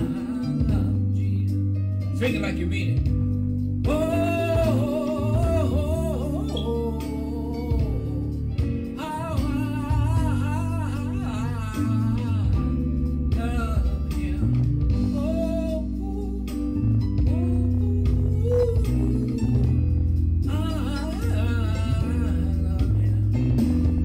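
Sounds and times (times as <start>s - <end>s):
solo voice singing: 0.0s - 1.8s, 3.8s - 24.0s
bass and guitar: 0.0s - 24.0s.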